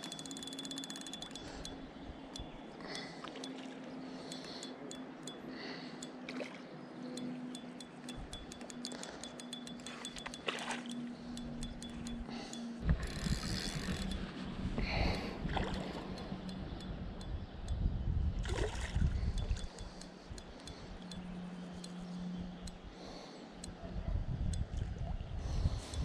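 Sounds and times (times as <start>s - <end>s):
fishing reel clicking: 0.0s - 3.6s, 7.2s - 14.2s, 19.3s - 23.8s
low hum: 0.0s - 26.0s
wind rumbling on microphone: 11.4s - 21.0s, 23.7s - 26.0s.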